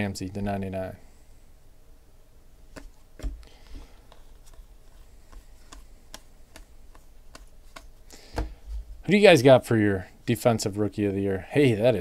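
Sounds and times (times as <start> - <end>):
cards flipping with sharp clicks: 2.7 - 8.5.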